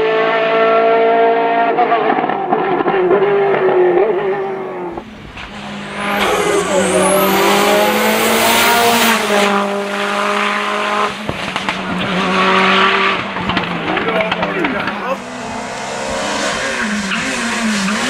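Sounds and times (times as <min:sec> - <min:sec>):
rally car engine at high revs: 0:00.0 - 0:18.0
tyres squealing: 0:04.3 - 0:09.4
exhaust crackling pops: 0:04.8 - 0:06.8, 0:08.7 - 0:15.2.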